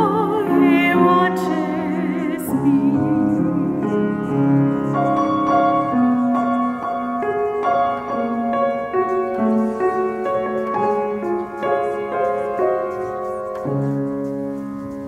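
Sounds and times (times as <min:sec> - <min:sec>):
slow classical piano music: 0:00.0 - 0:15.0.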